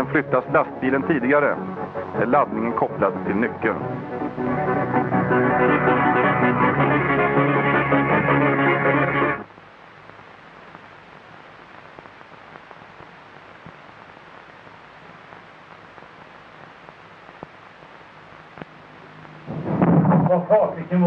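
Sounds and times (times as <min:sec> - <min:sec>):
music: 0:00.0 - 0:09.5, 0:18.8 - 0:21.0
low film soundtrack hiss: 0:00.0 - 0:21.0
faint clicks: 0:11.6 - 0:19.4.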